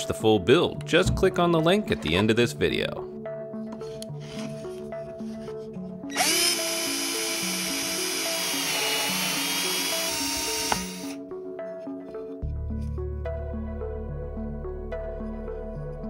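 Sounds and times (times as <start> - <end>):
background music: 0.0 - 16.0
power drill motor whining: 6.1 - 11.2.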